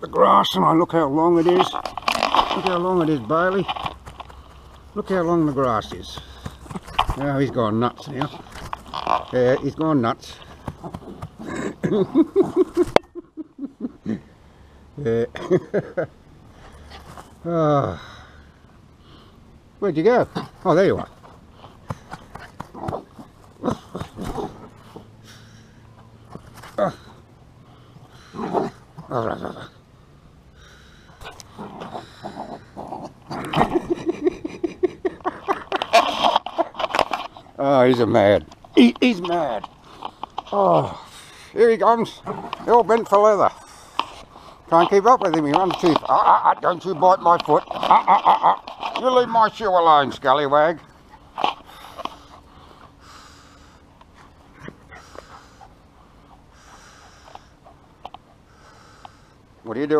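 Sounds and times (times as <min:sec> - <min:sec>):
dog grunting: 0:10.3 - 0:12.8, 0:22.0 - 0:25.5, 0:28.2 - 0:29.9, 0:31.2 - 0:36.9, 0:41.8 - 0:49.0
dog huffing: 0:51.1 - 0:59.2.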